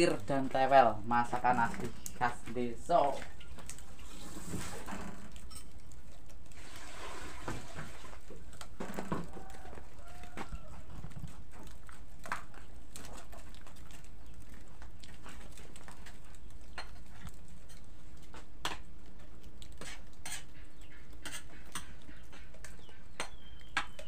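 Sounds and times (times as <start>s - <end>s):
metal utensil scraping a wok: 19.7s - 20.6s, 21.2s - 22.0s.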